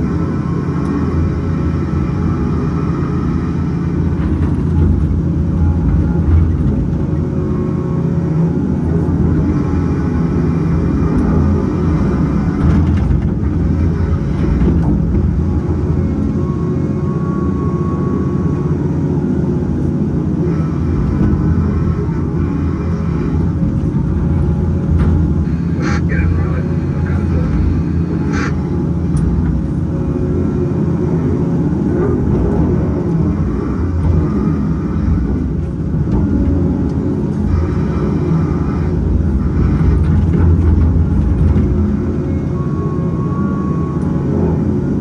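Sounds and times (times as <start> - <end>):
diesel engine running: 0.0 - 45.0.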